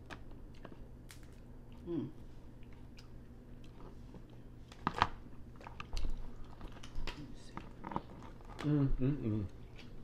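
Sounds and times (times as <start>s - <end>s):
crab shell cracking: 0.0s - 1.4s
crunching and chewing: 0.0s - 10.0s.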